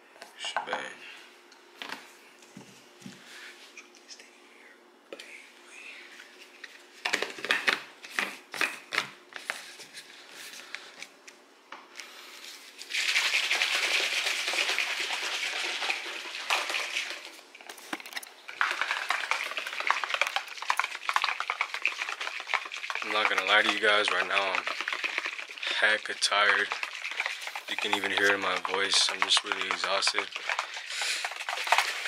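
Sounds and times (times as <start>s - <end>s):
liquid pouring into shaker: 12.8s - 17.4s, 18.5s - 32.0s
shaker bottle knocks and clicks: 26.3s - 30.7s.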